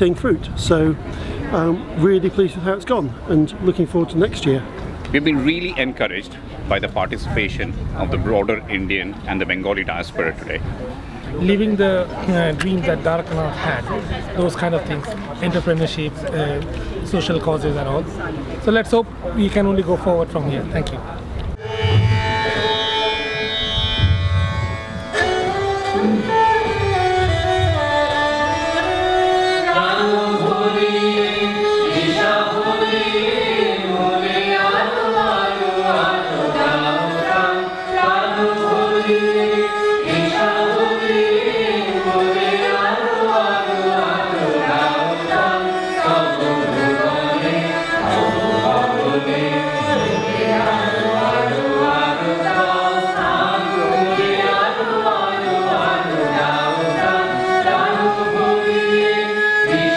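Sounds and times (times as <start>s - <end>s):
instrumental accompaniment: 21.5s - 59.9s
person singing a melody: 28.4s - 59.9s.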